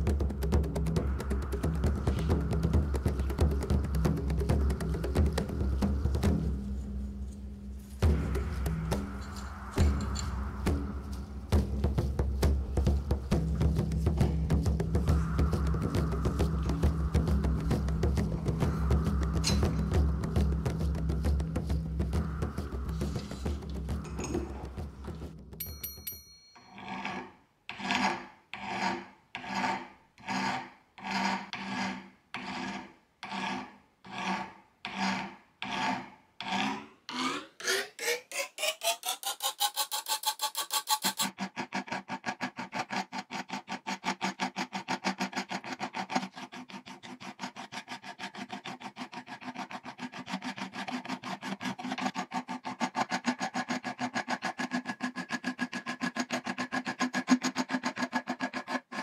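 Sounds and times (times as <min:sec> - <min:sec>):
file rasping on steel: 0:26.7 - 0:59.0.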